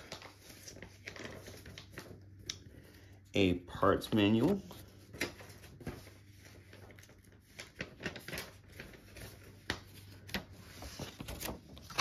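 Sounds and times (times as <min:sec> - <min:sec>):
soft paper clicks and crinkles: 0:00.0 - 0:03.2, 0:04.1 - 0:12.0
paper rustling and shuffling: 0:00.0 - 0:12.0.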